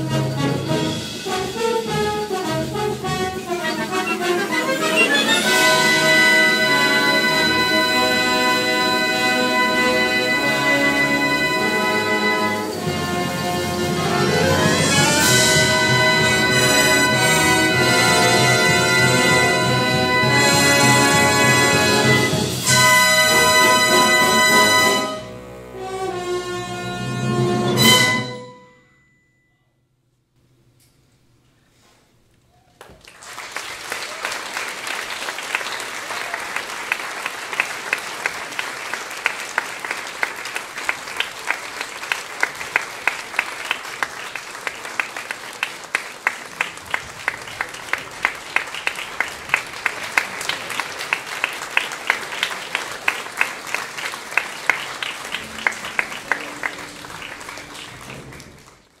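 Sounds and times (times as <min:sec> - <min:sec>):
audience applauding: 0:03.0 - 0:25.3, 0:32.7 - 0:59.0.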